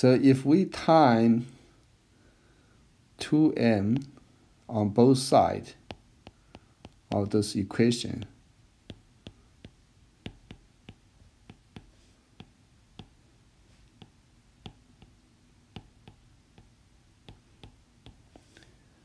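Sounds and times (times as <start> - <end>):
stylus tapping on tablet: 5.8 - 7.4, 8.0 - 13.2, 13.8 - 18.5.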